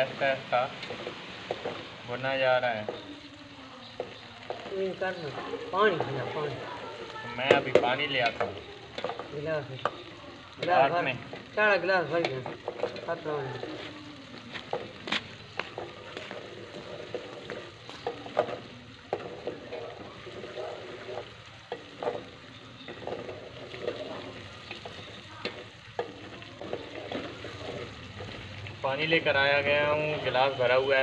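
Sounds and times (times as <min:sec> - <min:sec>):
meat and onions sizzling: 0:00.0 - 0:31.0
spoon scraping a pot: 0:14.7 - 0:28.4.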